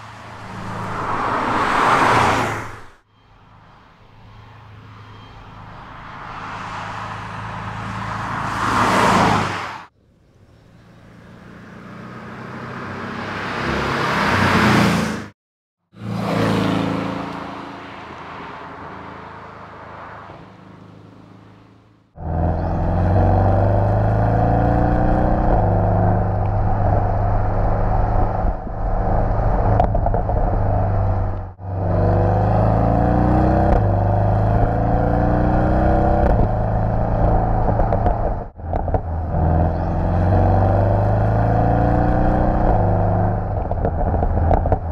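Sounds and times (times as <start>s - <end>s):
sports car passing by: 0.0s - 2.9s, 16.0s - 21.7s
car engine accelerating through gears: 22.2s - 44.9s.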